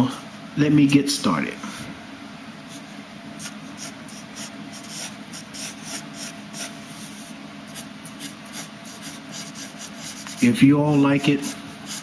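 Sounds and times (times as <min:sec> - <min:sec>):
pencil scratching on paper: 0:02.7 - 0:12.0.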